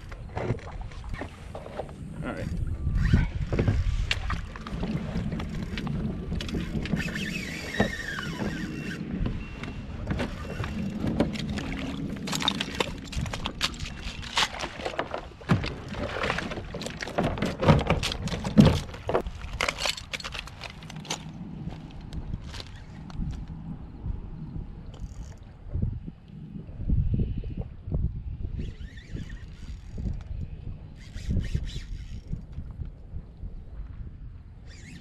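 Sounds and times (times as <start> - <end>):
water against kayak hull: 0.0 - 26.5.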